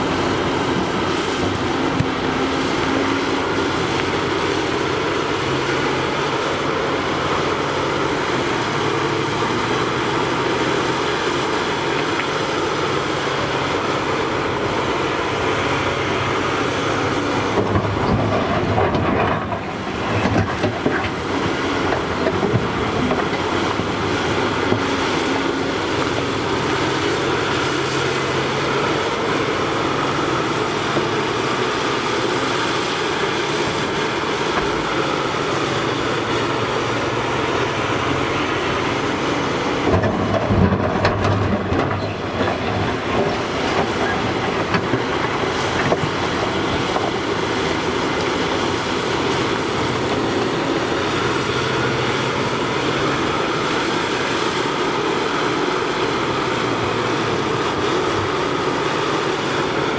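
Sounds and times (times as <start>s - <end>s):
excavator engine and hydraulics: 0.0s - 59.9s.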